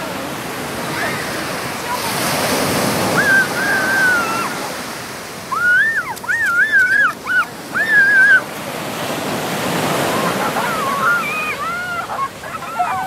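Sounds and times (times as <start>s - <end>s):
small surf washing up beach: 0.0s - 13.0s.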